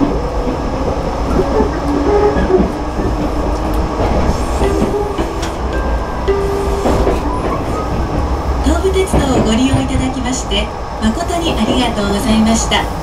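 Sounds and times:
train running gear rumble: 0.0s - 13.0s.

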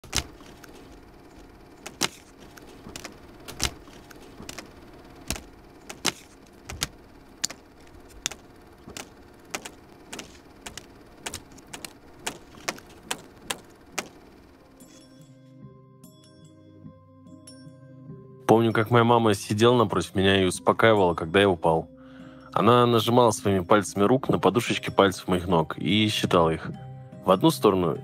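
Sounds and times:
sharp clicks and crackles: 0.0s - 14.3s.

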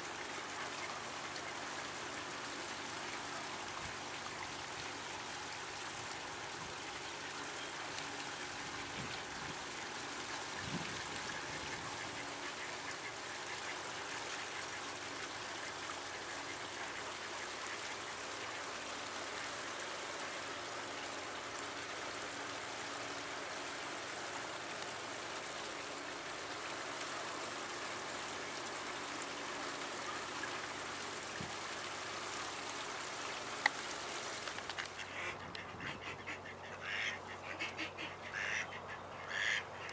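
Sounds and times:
stream water rushing: 0.0s - 39.9s
soft duck calls: 34.8s - 39.9s.

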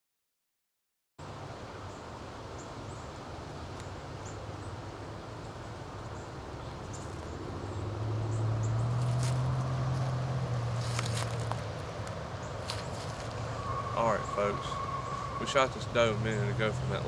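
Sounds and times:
faint high chirps: 12.7s - 16.7s.

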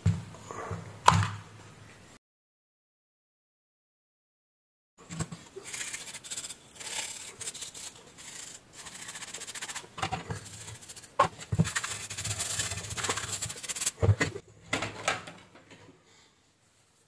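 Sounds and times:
paintbrush scrubbing circuit board: 5.6s - 14.0s.

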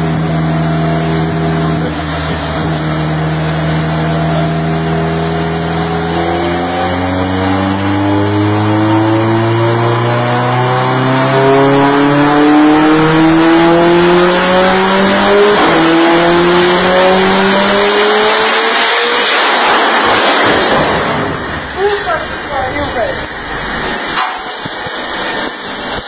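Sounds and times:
car engine revving at full throttle: 0.0s - 26.0s
rough noisy rush: 17.4s - 26.0s.

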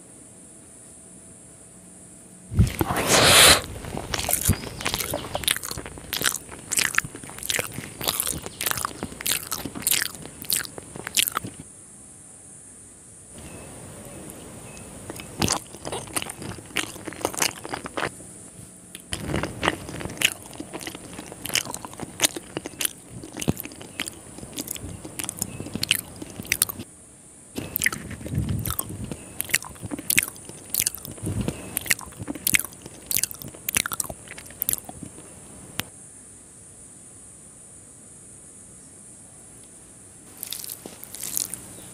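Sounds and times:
chewing food: 2.5s - 11.6s, 13.4s - 26.9s, 27.6s - 35.9s, 40.3s - 41.9s.

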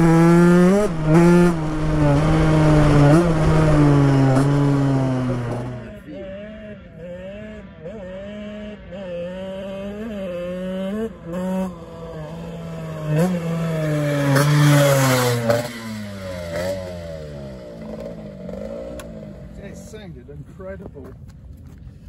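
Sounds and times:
motocross bike revving: 0.0s - 20.0s.

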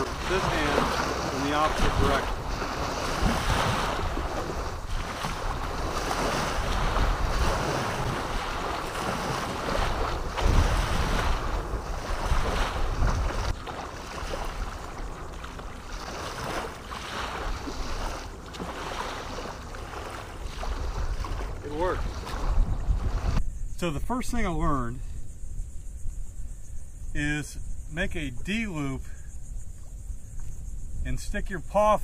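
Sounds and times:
small waves washing on shore: 0.0s - 23.4s
wind buffeting microphone: 0.0s - 23.8s.

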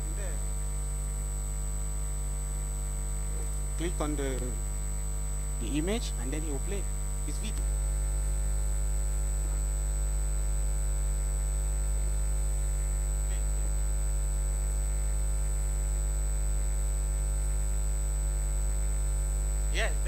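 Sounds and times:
electrical mains hum: 0.0s - 20.0s
thin high-pitched whine: 2.2s - 11.1s.

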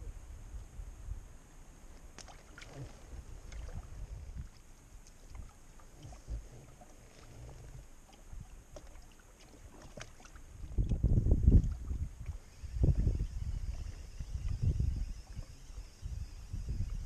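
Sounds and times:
wind rumble on microphone: 0.0s - 17.0s
water lapping: 2.0s - 16.2s.

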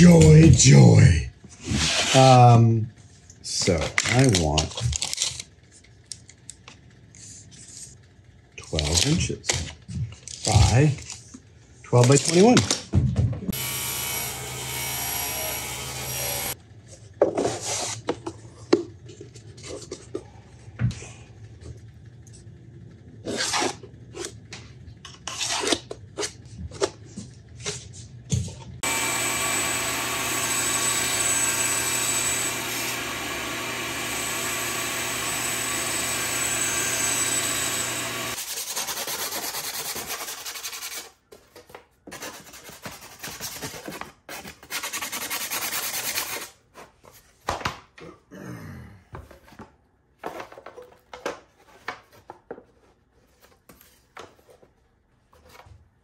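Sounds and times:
power tool whining: 13.5s - 16.6s, 28.8s - 38.4s.

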